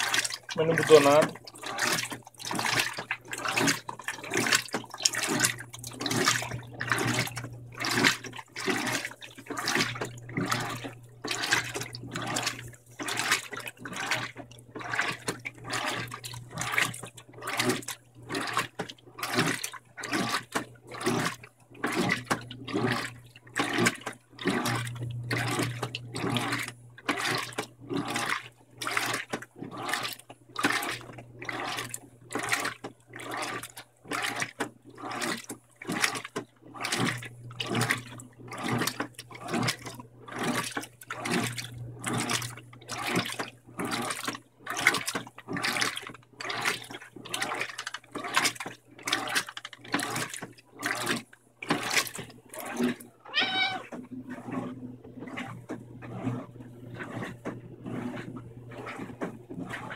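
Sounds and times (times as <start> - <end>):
water and clothes sloshing: 0.0 - 59.9
low motor hum: 24.5 - 27.0, 41.2 - 43.8, 52.5 - 59.9.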